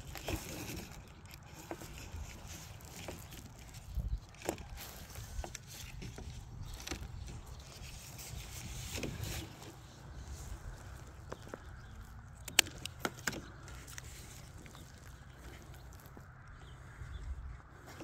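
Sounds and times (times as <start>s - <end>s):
plastic tubing rustling and scraping: 0.0s - 17.0s
sharp clicks: 12.4s - 14.6s.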